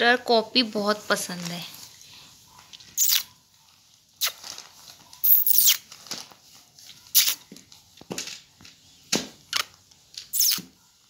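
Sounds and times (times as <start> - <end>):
notebook pages rustling: 3.8 - 8.9.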